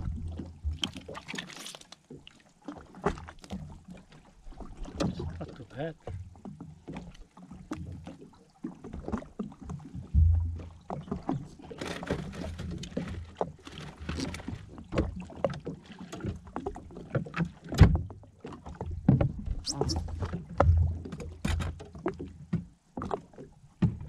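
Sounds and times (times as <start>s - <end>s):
water lapping against hull: 0.0s - 24.0s
gear knocking and rustling: 11.4s - 15.1s.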